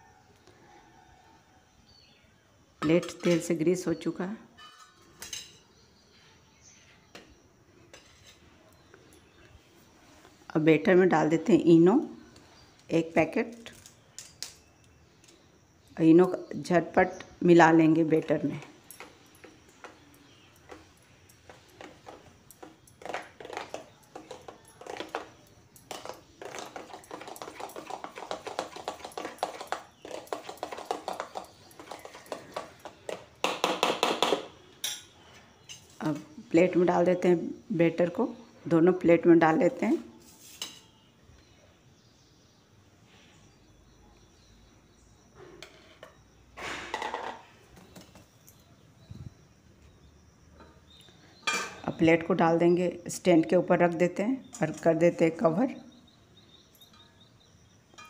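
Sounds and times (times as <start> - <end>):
metal spoon beating batter in bowl: 18.2 - 35.0.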